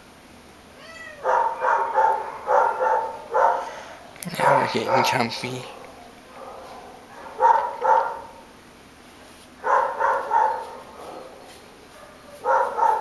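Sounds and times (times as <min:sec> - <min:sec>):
dog barking: 0:01.2 - 0:03.7, 0:04.4 - 0:08.4, 0:09.6 - 0:13.0.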